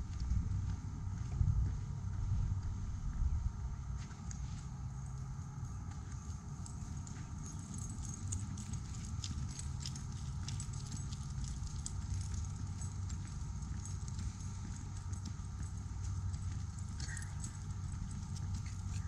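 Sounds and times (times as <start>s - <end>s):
footsteps on asphalt: 0.0s - 19.0s
steady low rumble: 0.0s - 19.0s.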